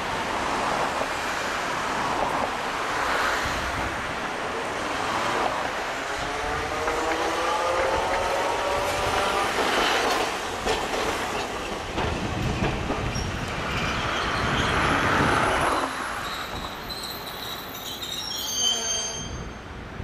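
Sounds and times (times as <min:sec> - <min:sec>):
wheels clacking over rail joints: 0:06.7 - 0:17.0.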